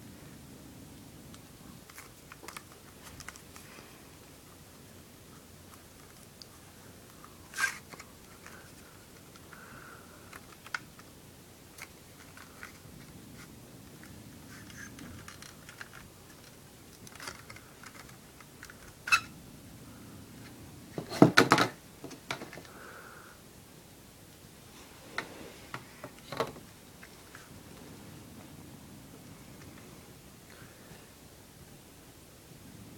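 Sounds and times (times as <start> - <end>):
sliding rustles: 1.7 - 11.1, 11.7 - 19.3
knocks on plastic case: 21.0 - 22.6.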